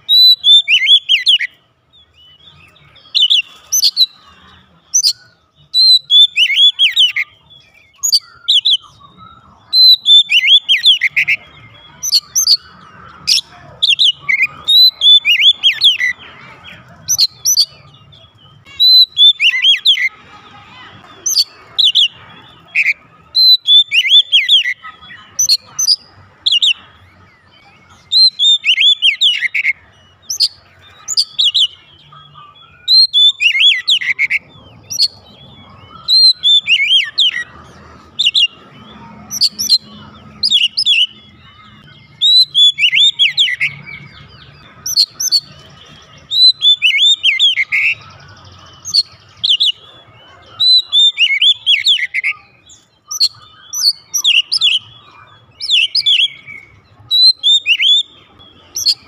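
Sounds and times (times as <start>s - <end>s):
bird singing whistles: 0.0s - 4.2s, 4.9s - 16.2s, 17.1s - 20.1s, 21.1s - 37.5s, 39.3s - 49.8s, 50.6s - 55.0s, 55.6s - 59.0s.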